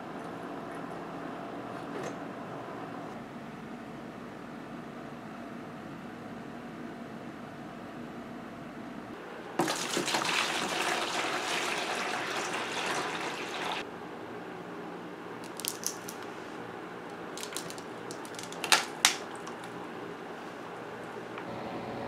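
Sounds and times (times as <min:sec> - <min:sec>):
jug knocking in bucket: 0:09.6 - 0:10.9
water pouring into plastic bucket: 0:09.6 - 0:13.8.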